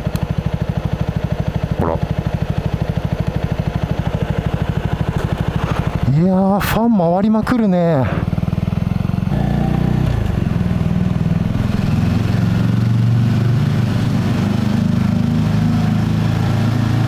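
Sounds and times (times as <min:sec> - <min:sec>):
motorcycle engine idling: 0:00.0 - 0:16.3.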